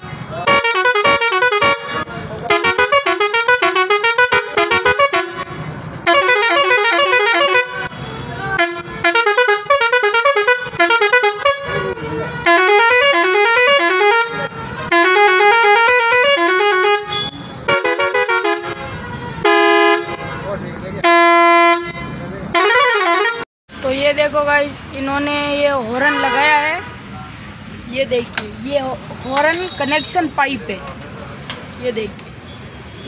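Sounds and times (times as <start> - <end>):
musical car horn playing tunes: 0.4 - 23.5.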